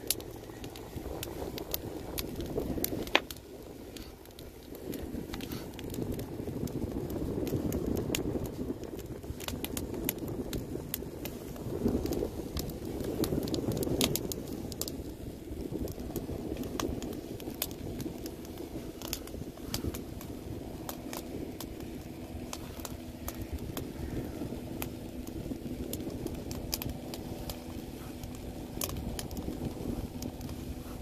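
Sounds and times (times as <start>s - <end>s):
sharp fire pops: 0.0s - 31.0s
steady low rumble: 0.0s - 31.0s
wood fire crackling: 0.0s - 31.0s.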